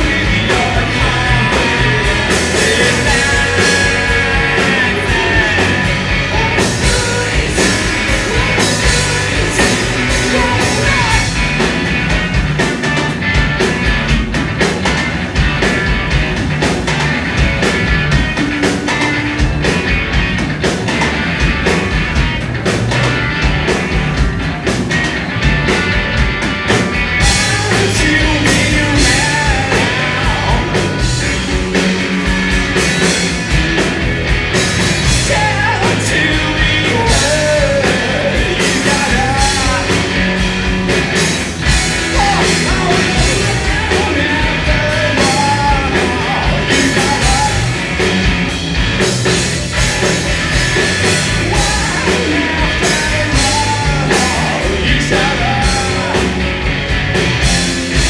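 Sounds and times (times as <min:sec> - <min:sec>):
person singing lead vocal: 0:00.0 - 0:11.6, 0:27.2 - 0:32.1, 0:35.0 - 0:40.2, 0:42.1 - 0:47.8, 0:51.1 - 0:56.4
rock band playing live: 0:00.0 - 0:58.0.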